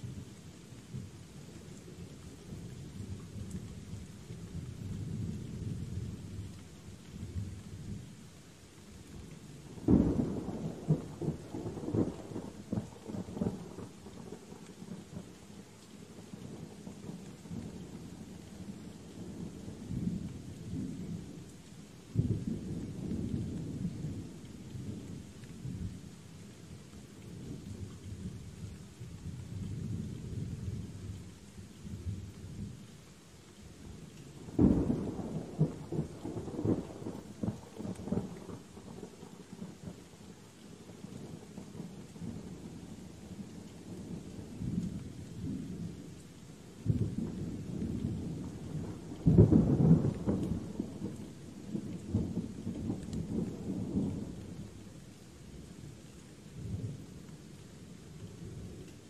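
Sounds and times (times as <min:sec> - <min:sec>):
steady rain: 0:00.0 - 0:59.0
rolling thunder: 0:46.9 - 0:54.6.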